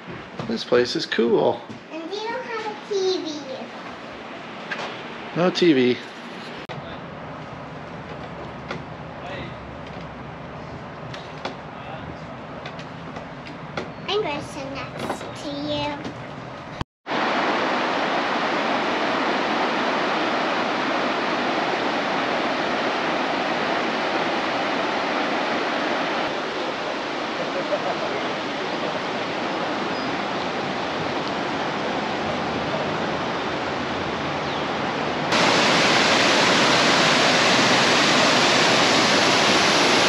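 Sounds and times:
waterfall roaring: 17.1 - 40.0.

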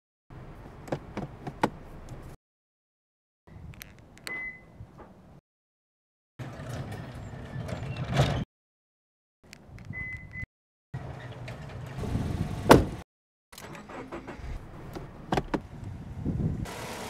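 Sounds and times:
car door clicks and knocks: 0.8 - 2.2, 12.6 - 13.0, 15.0 - 15.7
thud: 12.7 - 13.0.

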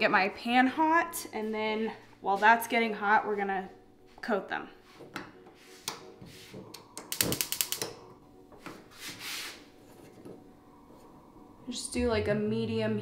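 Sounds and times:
spark igniter clicking: 6.7 - 8.0.

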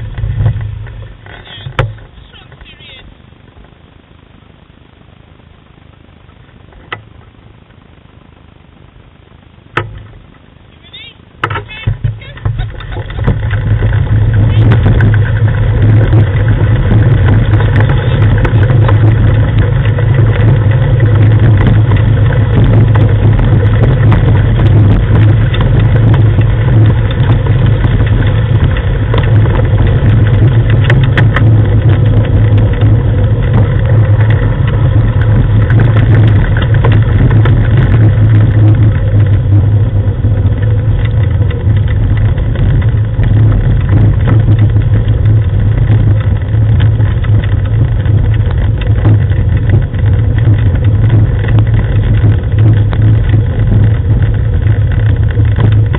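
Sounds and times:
rig rumbling on gravel: 0.0 - 55.9
small clicks and rattles: 11.4 - 55.9.

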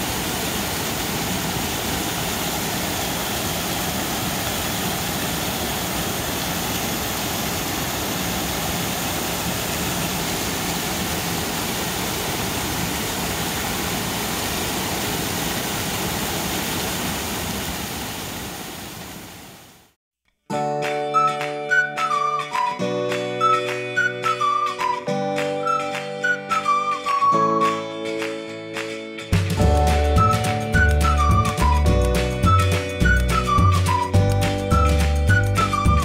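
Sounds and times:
waterfall rushing: 0.0 - 20.0
music: 20.3 - 36.0.

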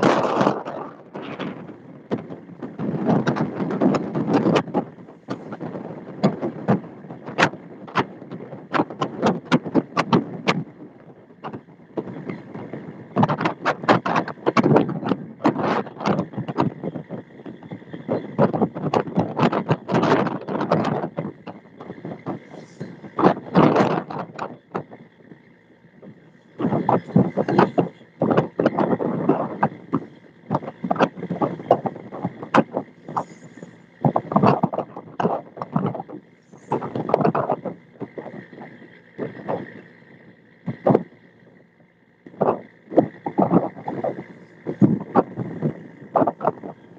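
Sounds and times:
boat engine and water noise: 0.0 - 46.9.

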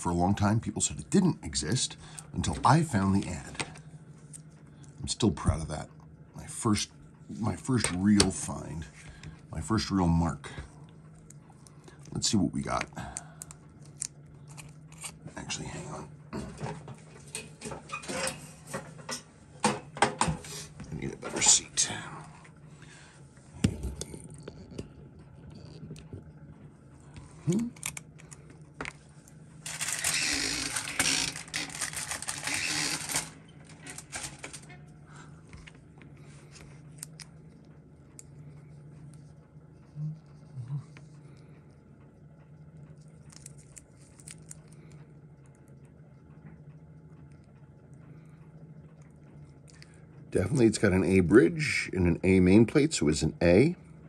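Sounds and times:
steady low hum: 0.0 - 54.0
scraping and rustling of watch case: 29.6 - 34.7.

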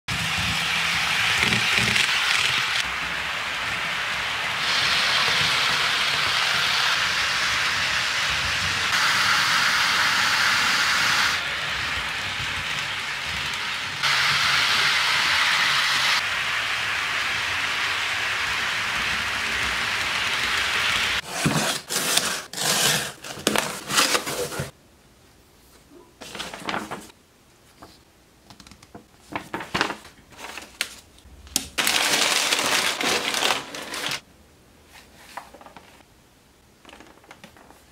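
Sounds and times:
model trains rolling on track: 0.1 - 21.2
packing paper crinkling: 26.2 - 27.2, 29.2 - 34.2, 35.2 - 36.0.

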